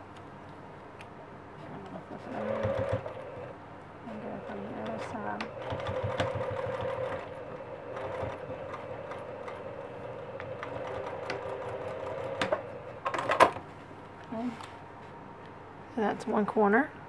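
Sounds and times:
sewing machine stitching: 2.3 - 3.5, 4.4 - 12.8.

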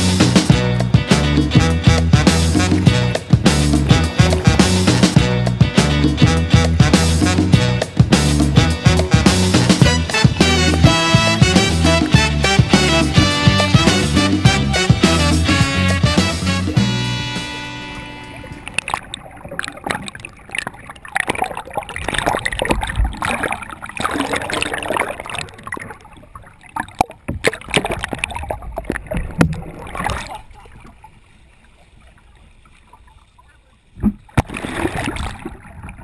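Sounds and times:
background music: 0.0 - 18.8
rushing water: 0.0 - 36.0
underwater gurgling and bubbling: 17.8 - 31.1, 34.0 - 36.0.

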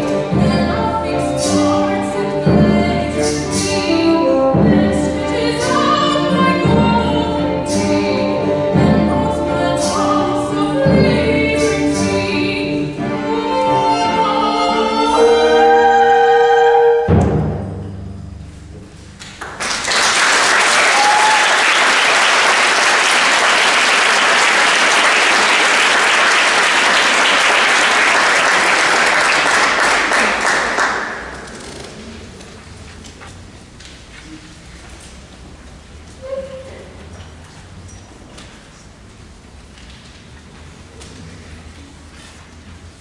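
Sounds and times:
choir with chamber orchestra: 0.0 - 17.6
audience applauding: 19.2 - 31.7.

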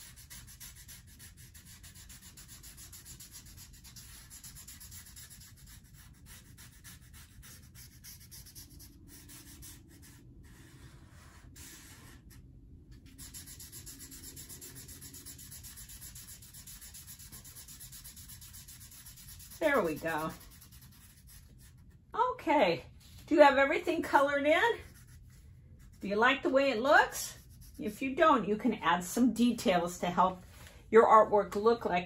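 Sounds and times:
marker scrubbing on paper: 0.0 - 22.0, 24.1 - 26.2, 27.0 - 28.0.

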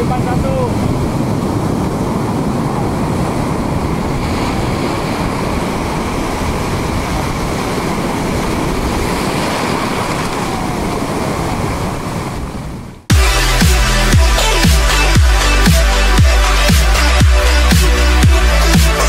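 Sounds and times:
surf breaking over rocks: 0.0 - 13.0.

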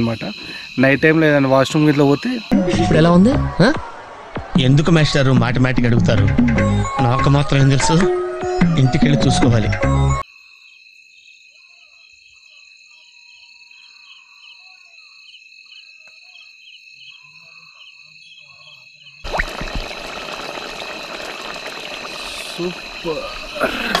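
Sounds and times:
insects trilling: 0.0 - 2.6, 10.2 - 24.0
frogs croaking: 0.0 - 3.2, 10.2 - 24.0
loud steady hissing: 19.3 - 24.0.

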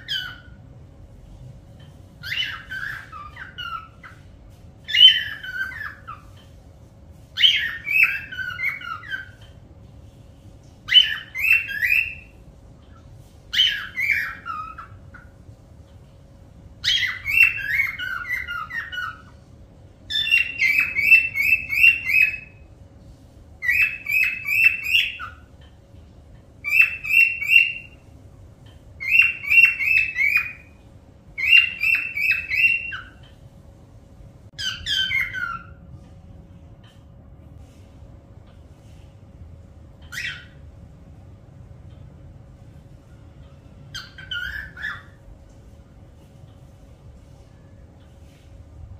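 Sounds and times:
parrot calling: 0.0 - 0.7, 2.1 - 6.6, 7.3 - 9.6, 10.8 - 15.4, 16.8 - 19.5, 20.1 - 22.7, 23.6 - 25.6, 26.6 - 28.0, 29.0 - 33.4, 34.5 - 35.9, 40.0 - 40.6, 43.9 - 45.3.

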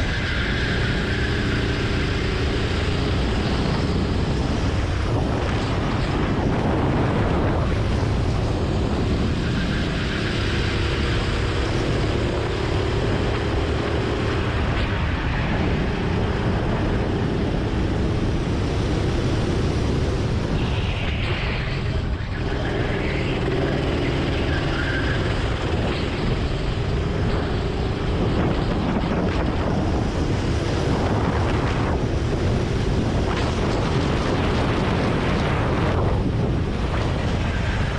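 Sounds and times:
go-kart engine revving: 22.3 - 28.2.

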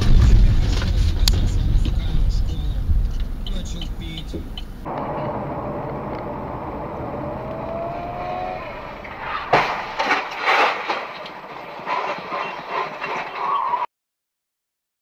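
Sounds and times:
loud irregular crashing noises: 0.0 - 2.4, 8.3 - 13.5
loud vehicle crash: 0.0 - 3.1, 4.9 - 13.9
car road and engine drone: 0.0 - 13.8.

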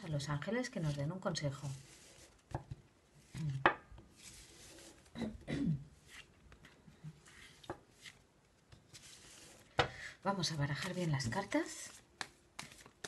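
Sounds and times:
cards sliding rustle: 4.1 - 5.1, 6.0 - 8.2, 8.8 - 9.8, 10.8 - 13.0.

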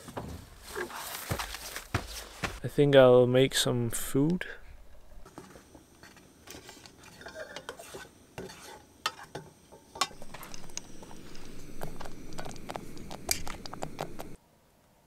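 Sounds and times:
spoon scraping a metal pot: 6.0 - 9.4.

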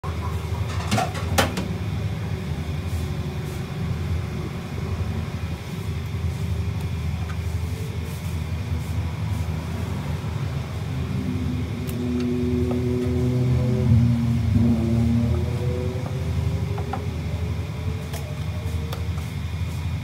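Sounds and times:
low machine hum: 0.0 - 20.0.

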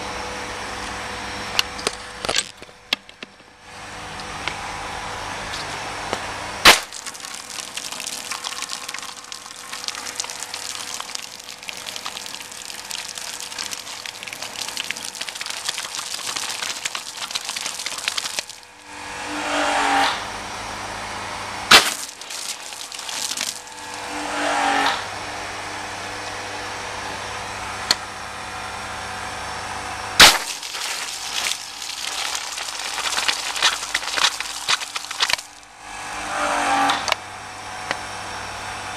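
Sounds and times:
water jet spraying on car: 6.6 - 18.7, 21.7 - 24.0.

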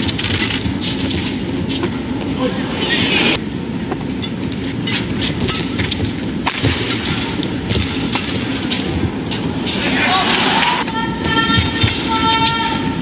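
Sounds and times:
racket striking shuttlecock: 4.2 - 8.9
arena crowd noise: 9.8 - 13.0.

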